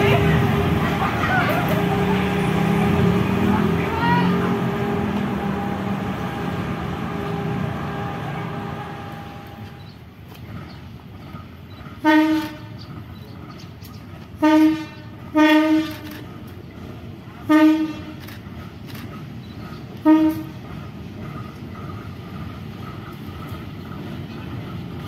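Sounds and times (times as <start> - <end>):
diesel railcar engine rumble: 0.0 - 25.0
locomotive horn blasts: 12.0 - 12.8, 14.4 - 16.2, 17.5 - 18.2, 20.0 - 20.6.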